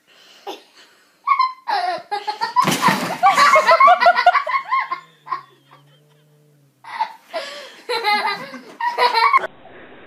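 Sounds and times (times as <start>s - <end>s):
people laughing: 1.7s - 6.3s, 6.9s - 9.5s.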